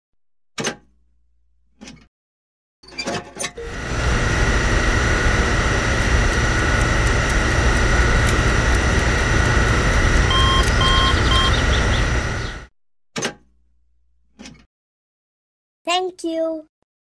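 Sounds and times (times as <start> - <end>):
fuel pump humming and whining: 3.6 - 12.7
short beeps: 10.3 - 11.6.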